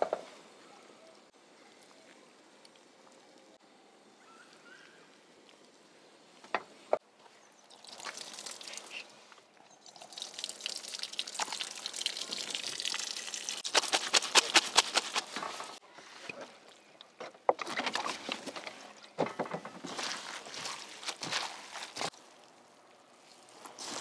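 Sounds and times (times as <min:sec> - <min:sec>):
water splashing into colander: 0:07.7 - 0:09.0, 0:09.8 - 0:14.6
wet crackles of noodles: 0:19.9 - 0:24.0.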